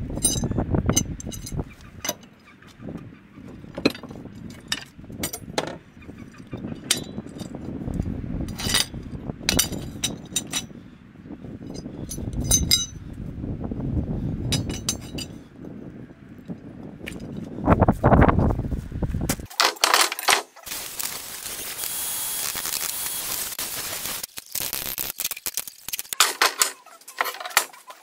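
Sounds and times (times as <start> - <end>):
iron bars clanking together: 0.2 - 2.3, 3.8 - 5.8, 6.6 - 7.6, 8.5 - 10.7, 11.7 - 13.0, 14.5 - 15.4, 19.5 - 20.6, 26.1 - 27.8.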